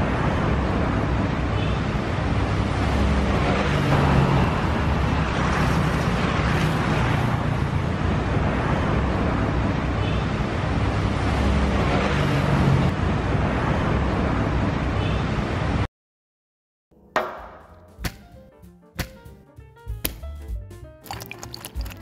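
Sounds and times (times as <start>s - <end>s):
passing vehicle engines humming: 0.0s - 15.9s
street traffic noise: 0.0s - 15.9s, 21.1s - 22.0s.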